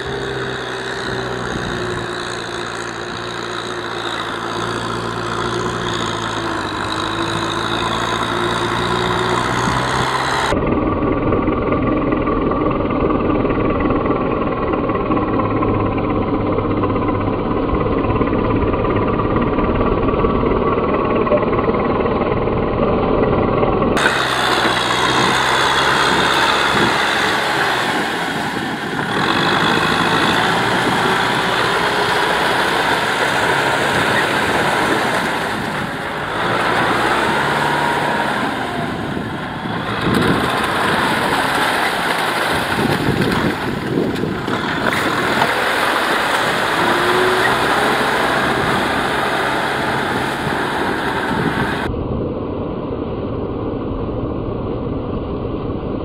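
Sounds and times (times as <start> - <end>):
tractor engine under load: 0.0 - 52.0
mud and water churning: 24.0 - 51.9.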